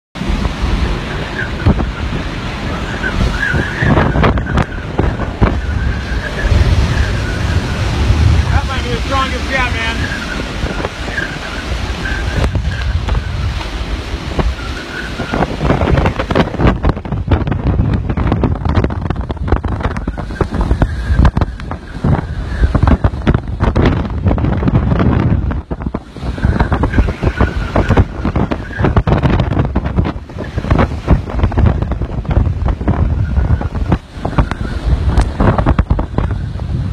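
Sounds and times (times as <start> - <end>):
wind buffeting microphone: 0.2 - 36.9
faint wavering whistle: 2.7 - 4.9, 10.0 - 13.6, 14.4 - 15.5
faint high whistle: 14.5 - 15.4.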